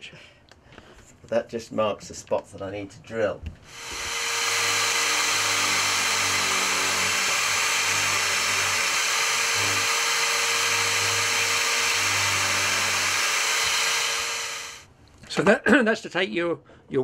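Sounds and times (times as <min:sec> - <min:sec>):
drill press boring into wood: 0:03.7 - 0:14.8.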